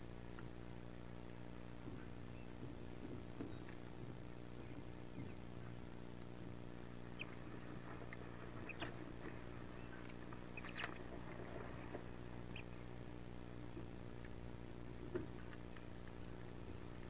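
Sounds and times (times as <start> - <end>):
steady low hum: 0.0 - 17.0
ducklings peeping: 1.8 - 13.2.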